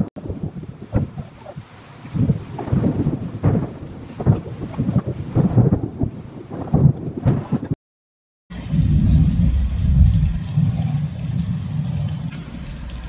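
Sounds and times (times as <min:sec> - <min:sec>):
rain hiss: 0:00.2 - 0:06.7, 0:08.5 - 0:13.0
low fluttering rumble: 0:08.5 - 0:13.0.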